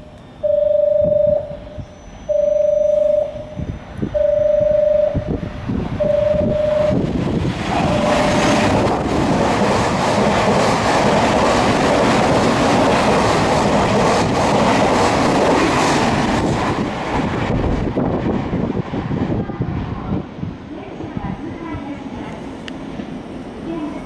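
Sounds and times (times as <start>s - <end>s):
electric train passing at speed: 0.0s - 24.0s
short beeps: 0.2s - 5.4s, 6.0s - 7.0s, 7.8s - 8.4s.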